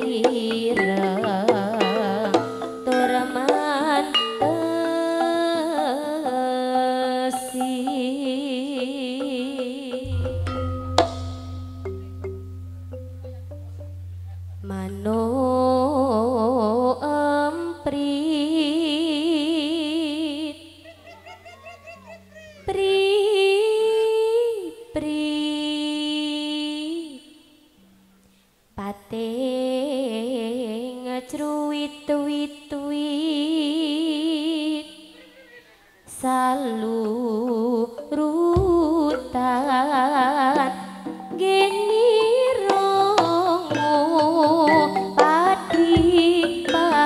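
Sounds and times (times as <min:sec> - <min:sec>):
gamelan accompaniment: 0:00.0 - 0:23.4, 0:36.5 - 0:47.0
woman singing with vibrato: 0:00.0 - 0:27.7, 0:28.8 - 0:35.4, 0:36.0 - 0:47.0.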